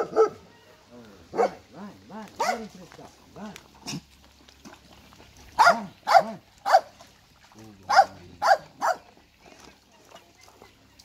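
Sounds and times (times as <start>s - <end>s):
dog barking: 0.0s - 0.4s, 1.3s - 1.6s, 2.4s - 2.7s, 5.6s - 6.9s, 7.9s - 9.1s.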